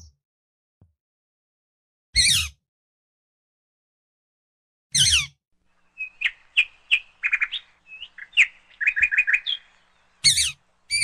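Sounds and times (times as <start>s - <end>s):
parakeet chirps: 5.9s - 11.0s
parakeet screeching: 10.2s - 11.0s.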